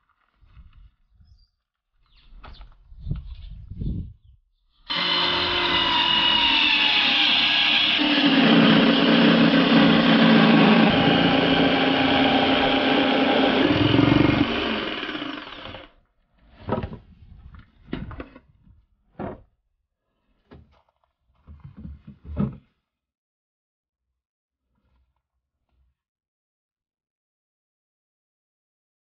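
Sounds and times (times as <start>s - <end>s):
power saw cutting wood: 4.9s - 15.9s.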